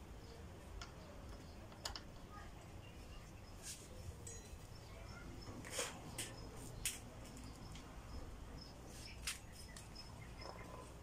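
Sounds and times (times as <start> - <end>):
parts clicking and rustling: 0.7 - 2.2
faint high chirp: 2.3 - 6.8.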